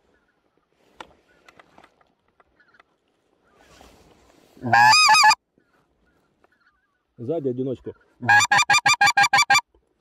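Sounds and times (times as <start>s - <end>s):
distant geese calling: 2.4s - 7.2s, 7.8s - 9.7s.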